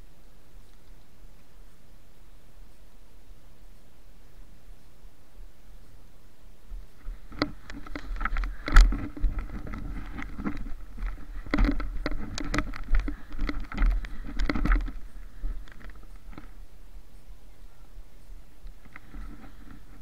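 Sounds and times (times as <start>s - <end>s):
handling rumble: 6.6s - 20.0s.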